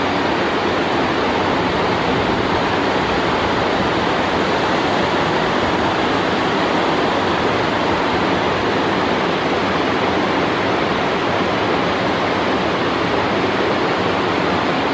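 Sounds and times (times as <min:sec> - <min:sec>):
waterfall rushing: 0:00.0 - 0:14.9.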